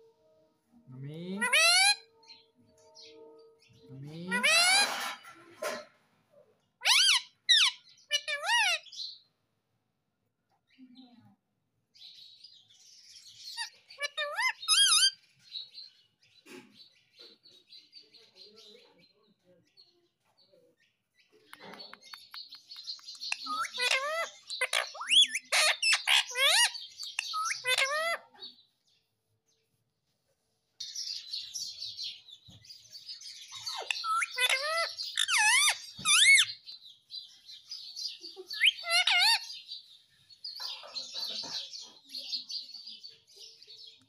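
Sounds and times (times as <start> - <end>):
parakeet chirps and squawks: 1.3 - 2.1, 3.8 - 5.9, 6.8 - 9.2, 13.0 - 15.2, 21.6 - 28.6, 33.0 - 39.8.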